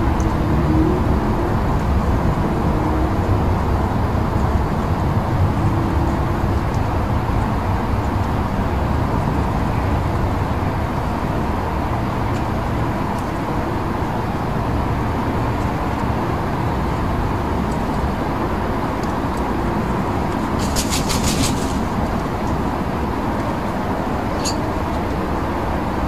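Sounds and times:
road traffic rumble: 0.0s - 26.0s
rapid high rattle: 20.5s - 22.2s.

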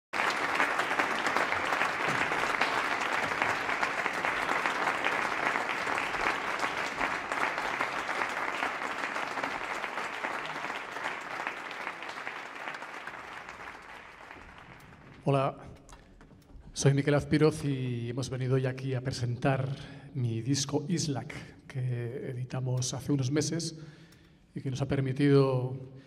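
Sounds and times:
audience applauding: 0.1s - 16.0s.

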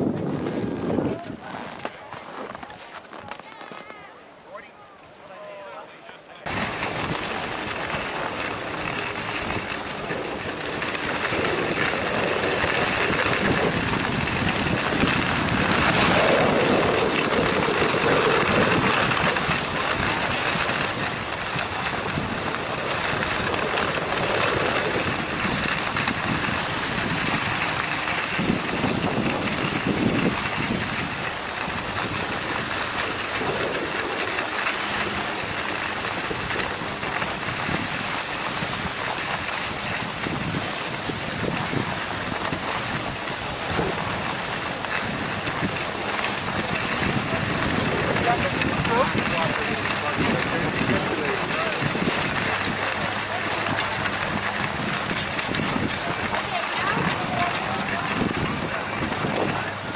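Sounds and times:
wind rushing over microphone: 0.0s - 3.3s, 6.4s - 59.9s
skis scraping over snow: 0.0s - 59.9s.

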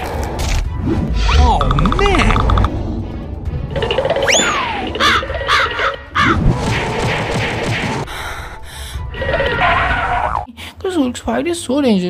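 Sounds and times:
busy cartoon soundtrack: 0.8s - 12.0s
caw-like squawks: 5.0s - 6.4s.

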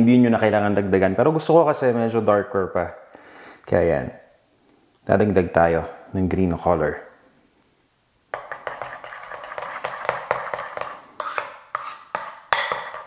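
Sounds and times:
spoon clinking in glass bowl: 11.8s - 13.0s.

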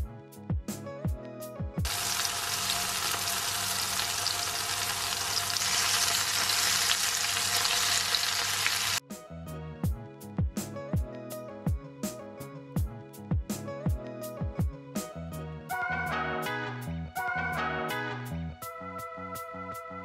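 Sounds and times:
background music with plucked notes: 0.0s - 20.0s
burger patties sizzling: 1.9s - 9.0s.

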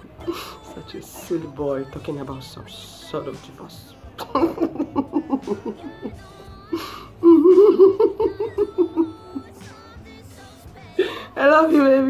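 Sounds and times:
woman crying and wailing: 0.0s - 2.4s, 4.0s - 10.1s, 10.7s - 12.0s
faint background music: 0.0s - 12.0s.

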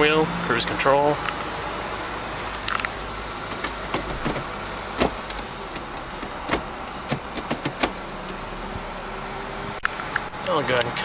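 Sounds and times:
car cabin background noise: 0.0s - 11.0s.

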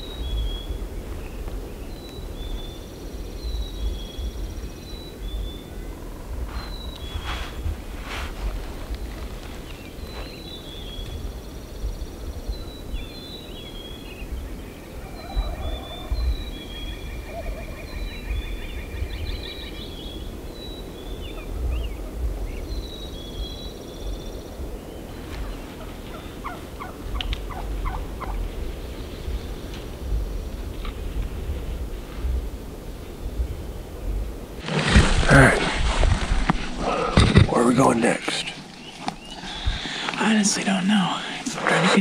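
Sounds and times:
songbird chirps and trill: 0.0s - 31.6s, 37.6s - 42.0s
wind rumble on microphone: 0.0s - 37.5s
turkeys gobbling: 15.0s - 16.4s, 25.8s - 28.5s.

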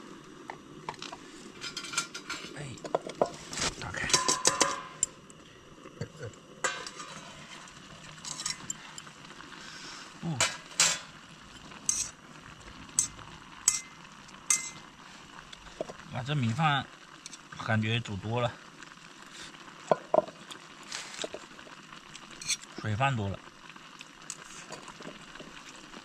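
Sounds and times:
faint steady hiss: 0.0s - 26.0s
metal utensil clinking on pot: 1.6s - 3.1s, 4.0s - 5.2s, 6.6s - 7.2s, 8.2s - 8.8s, 10.4s - 11.1s, 11.8s - 12.2s, 12.9s - 14.9s, 22.4s - 22.7s.

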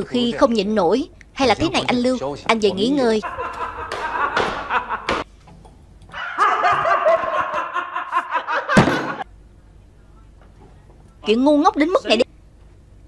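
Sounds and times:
men laughing: 3.1s - 5.3s, 6.1s - 9.3s.

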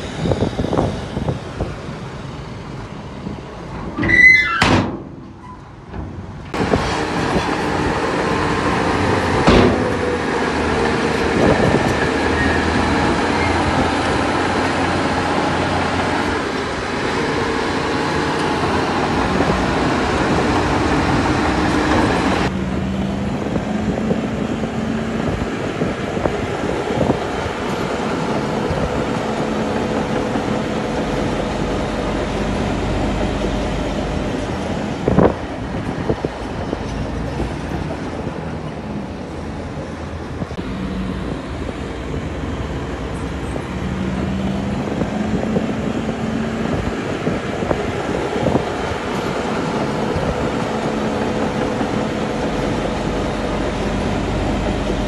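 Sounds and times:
diesel machinery running: 0.0s - 55.0s.

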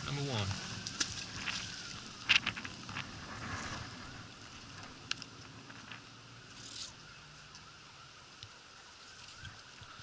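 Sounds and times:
rope scraping over edge: 2.6s - 4.2s.

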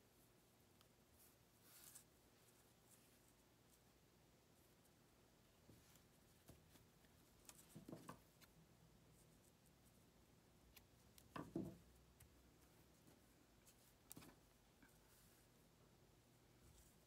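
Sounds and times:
scissors and yarn handling: 10.7s - 15.0s.

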